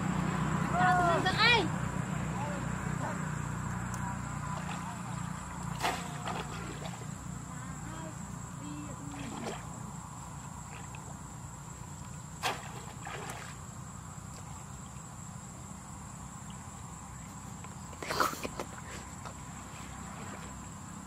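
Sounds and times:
insects singing: 0.0s - 21.0s
water splashing: 3.8s - 7.5s, 8.9s - 15.1s.

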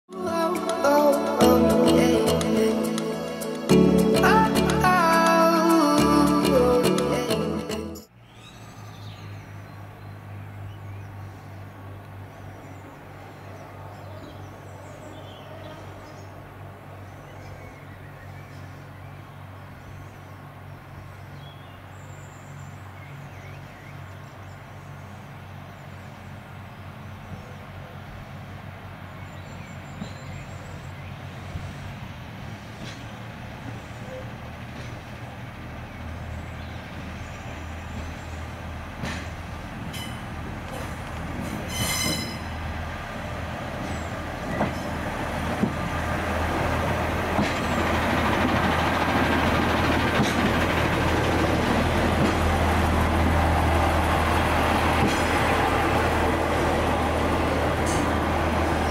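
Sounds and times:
diesel engine idling: 42.6s - 58.9s.

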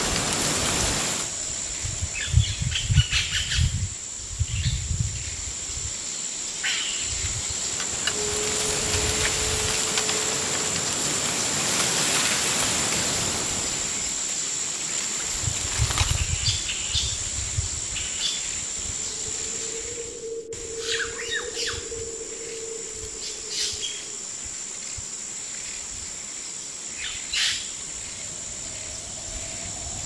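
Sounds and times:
high-pitched insect drone: 0.0s - 30.0s
faint bird chirps: 19.1s - 24.2s.

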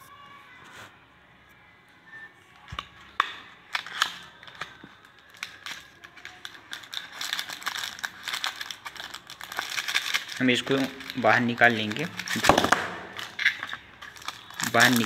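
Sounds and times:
packaging crinkling: 3.1s - 15.0s.

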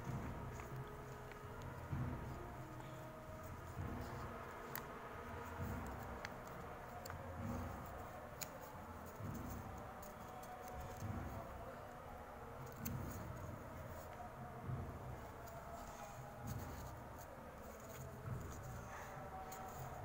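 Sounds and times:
paper tabs clicking: 0.5s - 11.4s, 15.4s - 18.8s.

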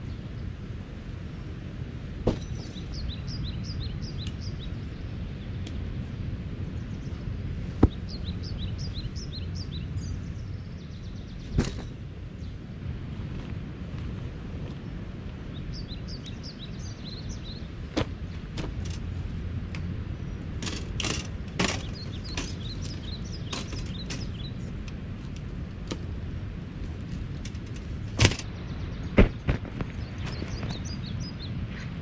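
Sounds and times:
wind rumble: 0.0s - 32.0s
small birds chirping: 2.3s - 12.8s, 14.0s - 32.0s
camping gear clicks and clatters: 11.5s - 12.0s, 17.9s - 19.9s, 20.5s - 28.5s.

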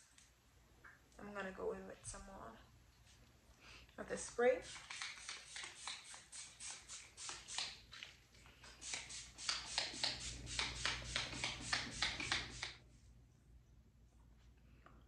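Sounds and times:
spray bottle squirting: 4.2s - 12.8s.

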